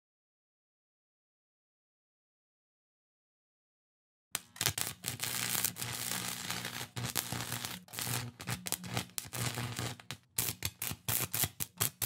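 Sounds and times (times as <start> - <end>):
hissing static: 4.4 - 10.0
electrical crackle and buzz: 4.4 - 12.0.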